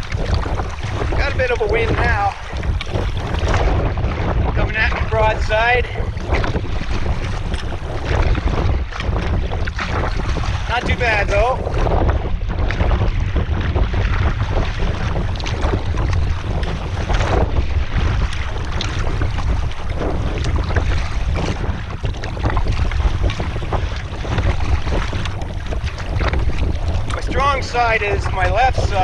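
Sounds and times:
water splashing against canoe: 0:00.0 - 0:29.0
wind buffeting microphone: 0:00.0 - 0:29.0.

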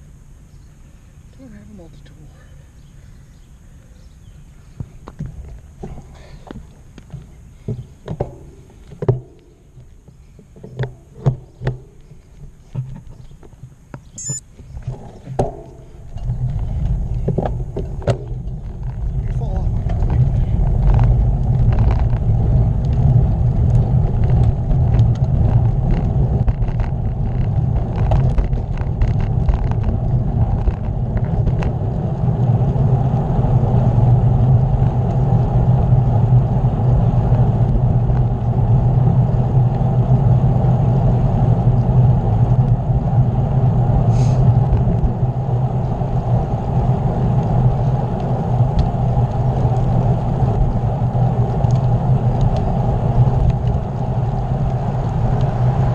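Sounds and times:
road noise: 0:00.0 - 0:55.9
wind rushing over microphone: 0:13.8 - 0:55.9.

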